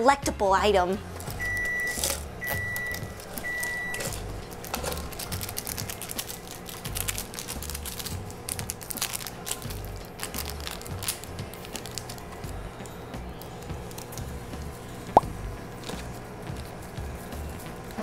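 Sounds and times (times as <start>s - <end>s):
background music with low beat: 0.0s - 18.0s
lid crinkling and tearing: 1.2s - 14.2s
appliance beeps: 1.3s - 4.4s.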